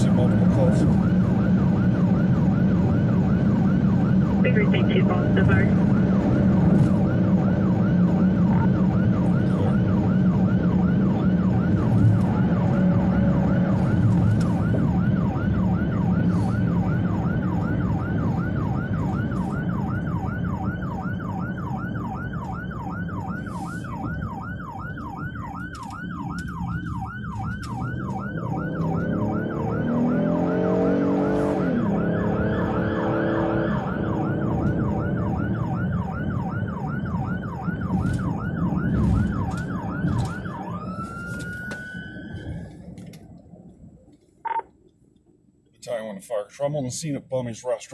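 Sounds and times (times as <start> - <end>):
electronic siren yelping: 0.0 - 42.6, 44.4 - 44.7
engine and road noise: 0.0 - 47.9.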